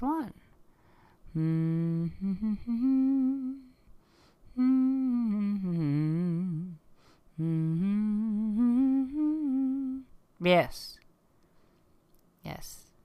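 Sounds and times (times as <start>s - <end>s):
woman humming: 1.2s - 3.9s, 4.5s - 6.8s, 7.4s - 10.2s.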